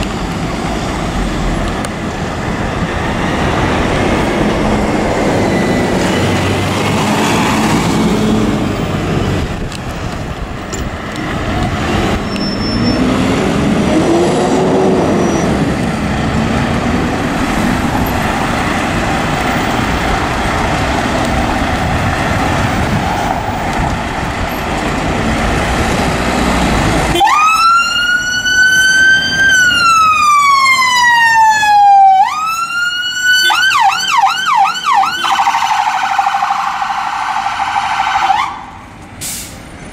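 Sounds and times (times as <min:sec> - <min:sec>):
fire engine diesel rumble: 0:00.0 - 0:39.9
siren wailing: 0:27.1 - 0:38.8
siren yelping: 0:27.1 - 0:38.8.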